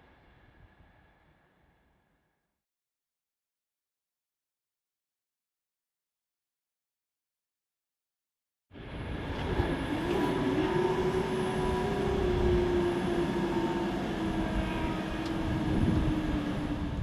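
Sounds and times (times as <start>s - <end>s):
crossing barrier mechanism humming: 9.1s - 17.0s.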